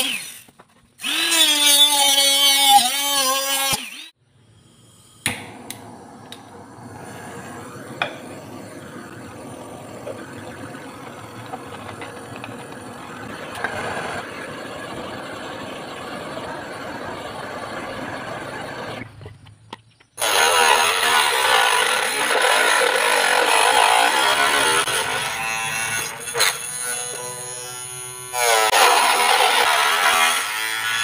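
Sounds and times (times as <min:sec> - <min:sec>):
gas torch hissing: 0:04.4 - 0:14.2
loud steady motor noise: 0:05.3 - 0:19.1.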